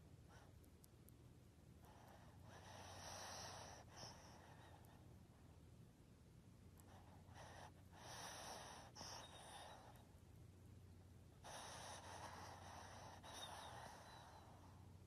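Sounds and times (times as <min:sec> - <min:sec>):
dog breathing noisily: 0:01.8 - 0:04.9, 0:06.9 - 0:10.0, 0:11.4 - 0:14.9.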